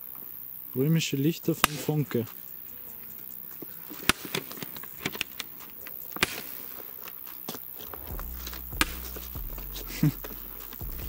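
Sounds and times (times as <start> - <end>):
firecrackers cracking: 1.6 - 2.4, 3.6 - 11.0.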